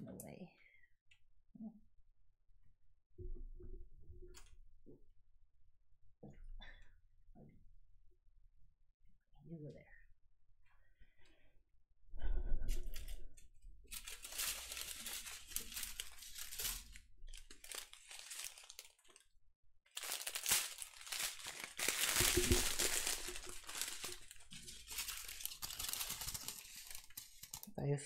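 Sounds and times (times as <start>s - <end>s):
plastic bags crinkling: 13.9s - 19.2s, 19.9s - 27.8s.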